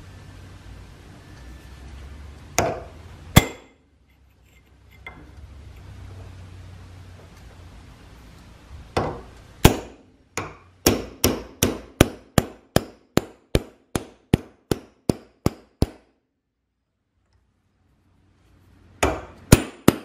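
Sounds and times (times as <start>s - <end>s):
hammer striking metal: 2.6s - 3.8s, 9.0s - 16.1s.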